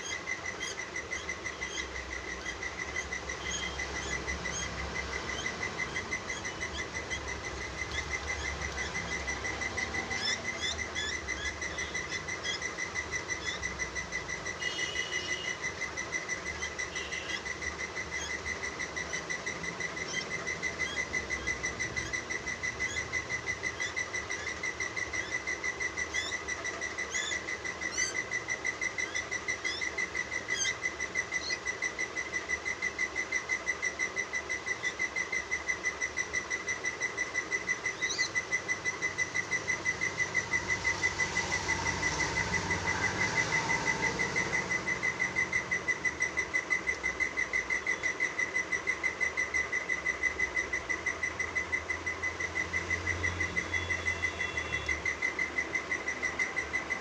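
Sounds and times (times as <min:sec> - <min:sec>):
baby bird begging call: 0:00.0 - 0:57.0
short rising chirps: 0:33.0 - 0:57.0.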